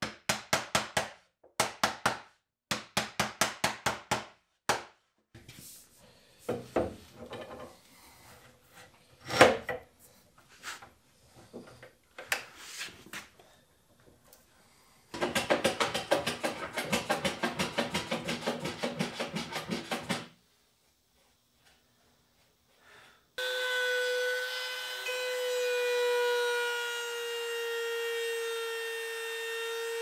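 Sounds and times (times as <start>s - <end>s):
wood and clamps knocking: 15.2s - 20.3s
hand tool rubbing wood: 15.8s - 20.3s.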